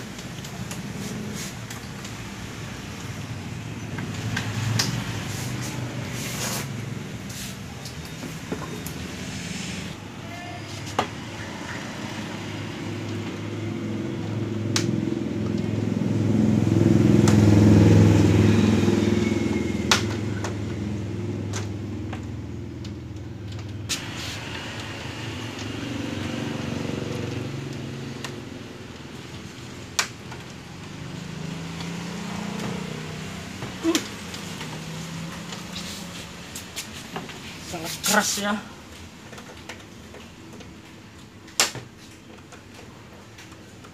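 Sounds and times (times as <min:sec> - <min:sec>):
vehicle engine passing: 0:00.6 - 0:10.0, 0:11.2 - 0:22.0, 0:23.9 - 0:29.8, 0:30.6 - 0:38.0.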